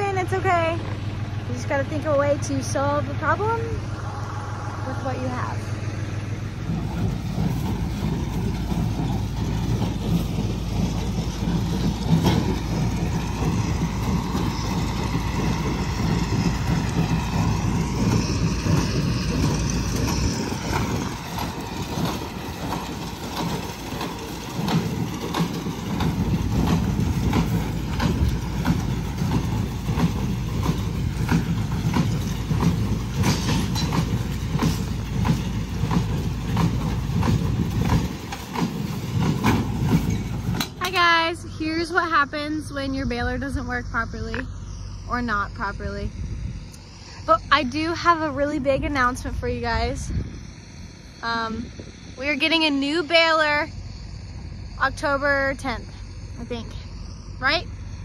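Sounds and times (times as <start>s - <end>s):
tractor engine rumble: 0.0s - 58.0s
baler machinery clattering knocks: 6.6s - 41.2s.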